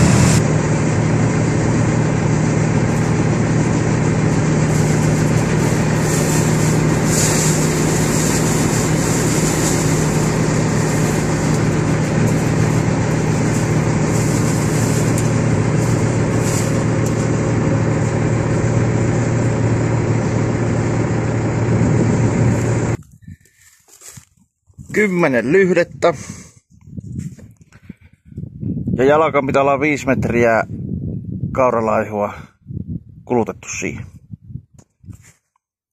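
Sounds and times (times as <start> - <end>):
heavy diesel engines running: 0.0 - 23.7.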